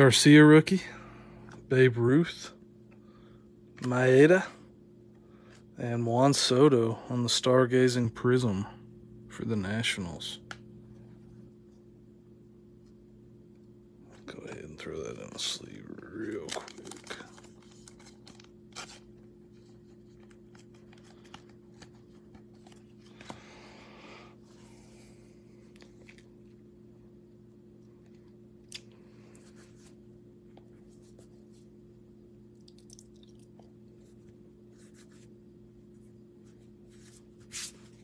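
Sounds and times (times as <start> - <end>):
steady low hum: 0.0 - 38.0
trading cards rustling: 15.3 - 23.7, 36.6 - 38.0.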